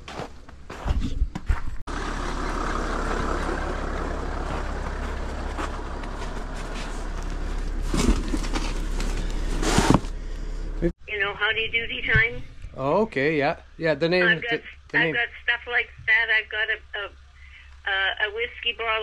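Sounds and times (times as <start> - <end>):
vehicle engine idling: 1.9 - 10.9.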